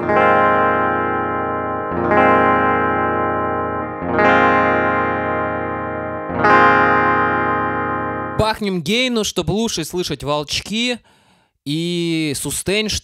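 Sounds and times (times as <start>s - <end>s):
electric guitar notes ringing: 0.0s - 8.4s.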